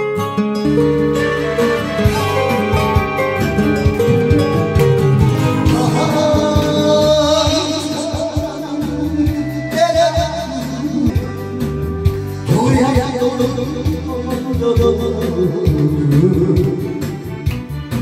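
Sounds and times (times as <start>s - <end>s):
karaoke backing track: 0.0s - 18.0s
man singing into microphone: 5.6s - 11.4s, 12.4s - 17.3s.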